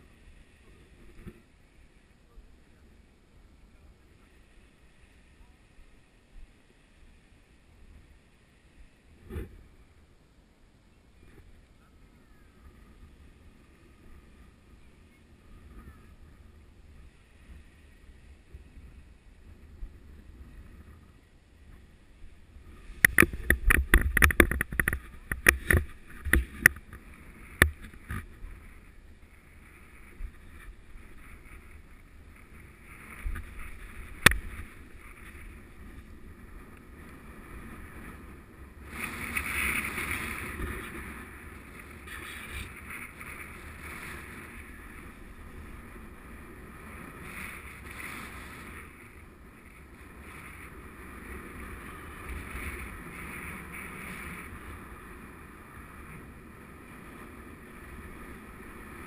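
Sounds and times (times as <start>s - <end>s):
wind buffeting microphone: 12.2s - 59.0s.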